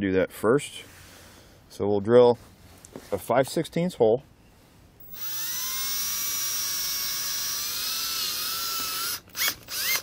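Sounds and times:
drill whining through plastic: 0:05.0 - 0:10.0.

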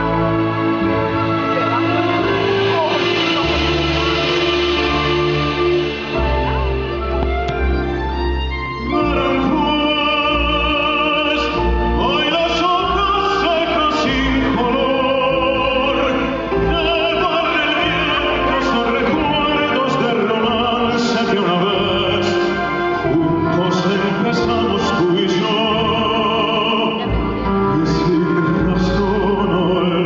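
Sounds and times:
band with piano: 0:00.0 - 0:30.0
man singing with vibrato: 0:08.8 - 0:30.0.

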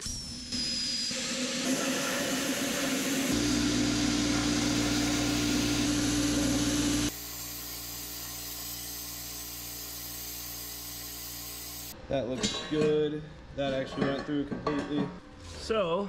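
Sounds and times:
plasma cutter hiss: 0:00.0 - 0:03.4, 0:06.9 - 0:12.0.

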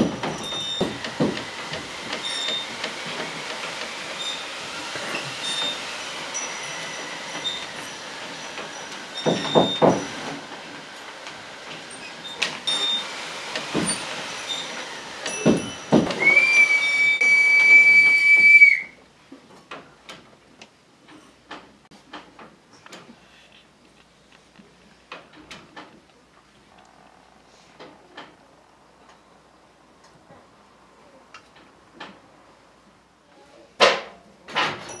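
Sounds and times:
rattling scraping din: 0:00.0 - 0:18.7
heavy thumps: 0:15.3 - 0:16.3
steady high whistle: 0:16.2 - 0:19.0.

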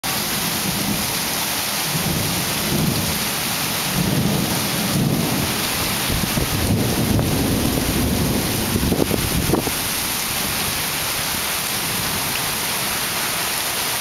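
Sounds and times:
rain pouring: 0:00.0 - 0:14.0
thunder rumbling: 0:01.9 - 0:11.2.

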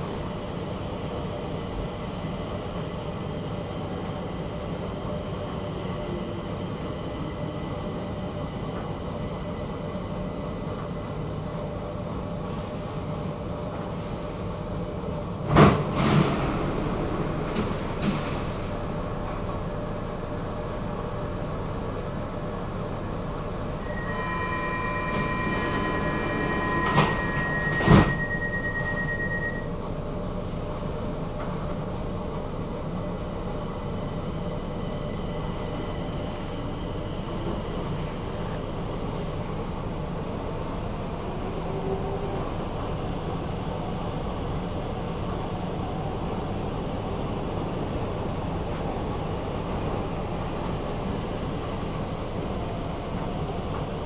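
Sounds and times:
metro train rumbling: 0:00.0 - 0:54.0
high steady whine: 0:18.5 - 0:29.7.

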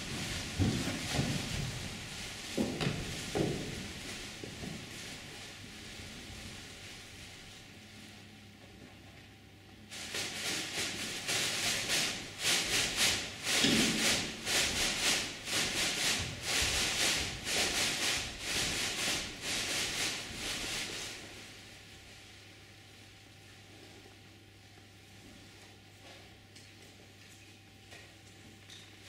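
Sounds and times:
feet shuffling on stage floor: 0:00.0 - 0:07.7.

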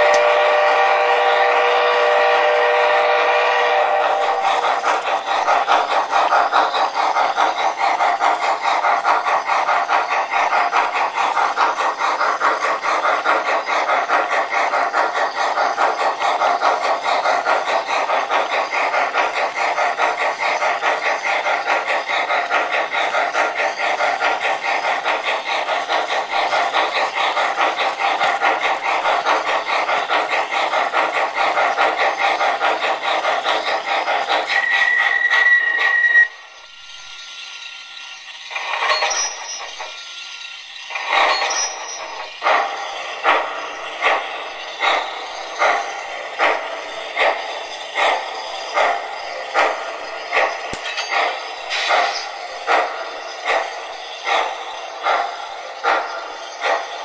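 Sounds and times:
steam whistle: 0:00.0 - 0:04.2, 0:34.6 - 0:36.4
rapid steam chuffing: 0:00.0 - 0:57.0.

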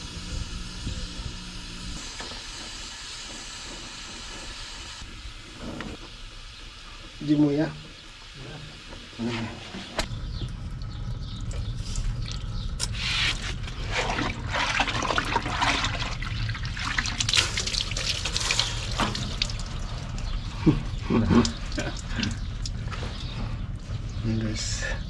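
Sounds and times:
water trickling and splashing: 0:10.4 - 0:23.5.

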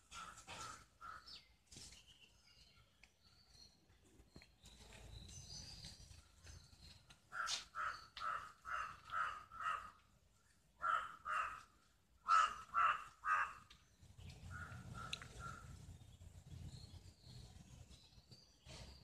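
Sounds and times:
crow cawing: 0:00.1 - 0:01.3, 0:07.3 - 0:10.0, 0:10.8 - 0:13.7.

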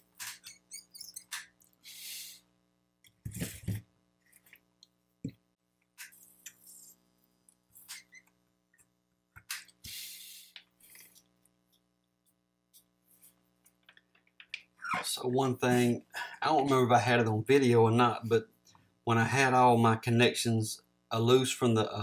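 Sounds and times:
faint steady hum: 0:00.0 - 0:22.0
small clicks and taps: 0:13.6 - 0:14.7.

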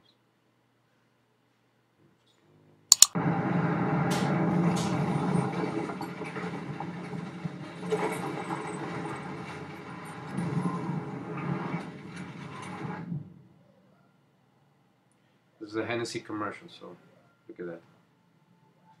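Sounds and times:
sharp clicks: 0:02.9 - 0:03.2.

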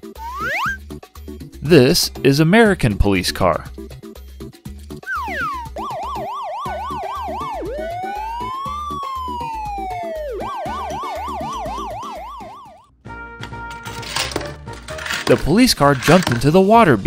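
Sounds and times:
police siren yelp and wail: 0:05.1 - 0:12.9.

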